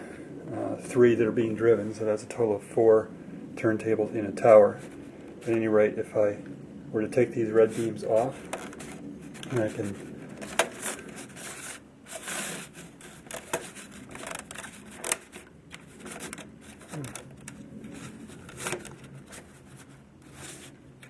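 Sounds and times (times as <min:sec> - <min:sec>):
plastic scraping on plastic: 0:07.6 - 0:21.0.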